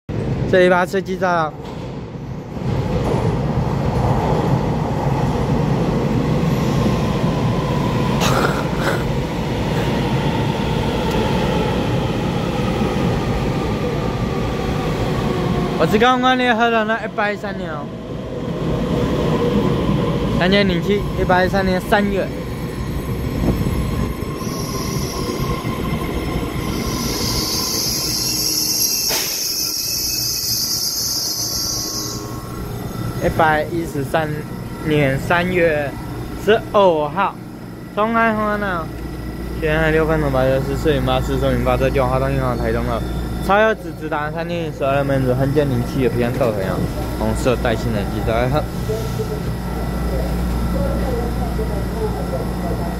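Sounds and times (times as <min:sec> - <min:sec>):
train wheels rumbling on rail: 0:00.1 - 0:52.9
high squeal of running gear: 0:22.6 - 0:33.3, 0:42.2 - 0:44.2.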